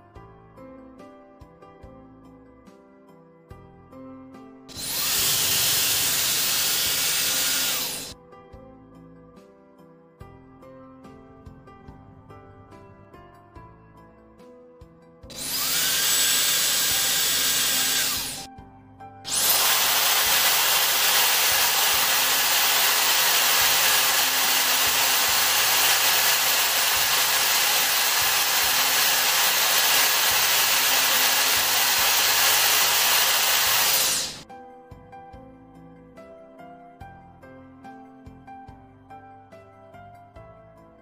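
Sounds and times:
hair dryer motor and airflow: 4.7 - 8.2, 15.3 - 18.5, 19.3 - 34.4.

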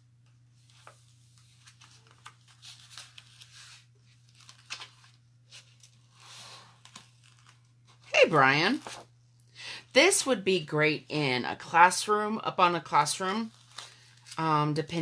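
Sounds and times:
transfer sheet peeling and crinkling: 0.6 - 9.1, 13.2 - 15.0.

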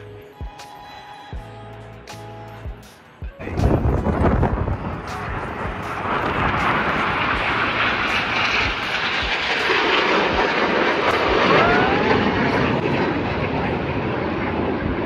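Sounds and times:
jet aircraft flying past: 3.0 - 15.0.

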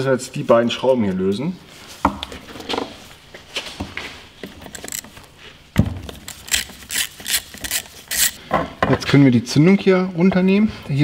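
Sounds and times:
quick tool clicking: 6.3 - 8.4.

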